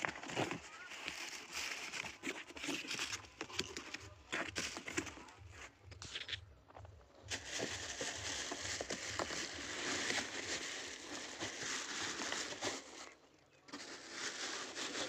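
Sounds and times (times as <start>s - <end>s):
plastic wrapping crinkling: 7.3s - 15.0s.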